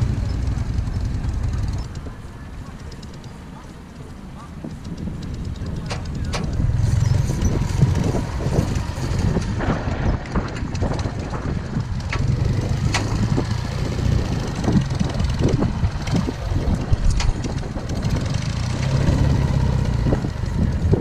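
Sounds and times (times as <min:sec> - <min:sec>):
motorcycle engine running: 0:00.0 - 0:21.0
sharp clicks: 0:00.1 - 0:13.6.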